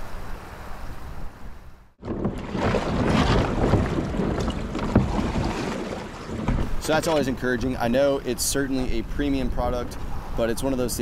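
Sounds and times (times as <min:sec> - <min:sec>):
paddle strokes splashing: 0:02.0 - 0:07.4.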